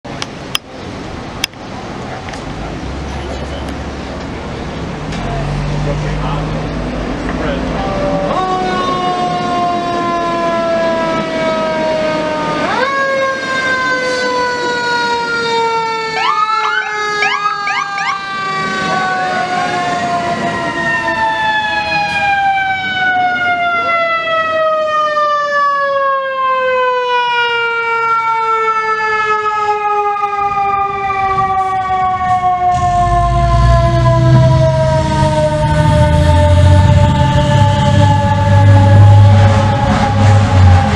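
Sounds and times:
fire truck siren wailing: 3.0 - 40.9
siren whoops: 7.8 - 40.9.

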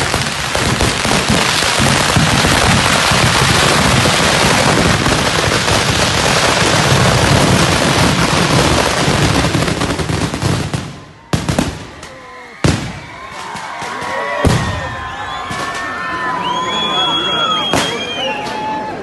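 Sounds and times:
sharp firework bangs: 0.0 - 14.9
fireworks crackling: 0.0 - 18.7.

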